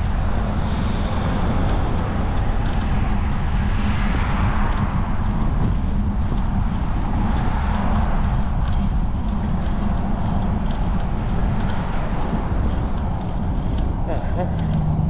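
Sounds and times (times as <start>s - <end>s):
road and traffic noise: 0.0s - 15.0s
wind buffeting microphone: 0.0s - 15.0s.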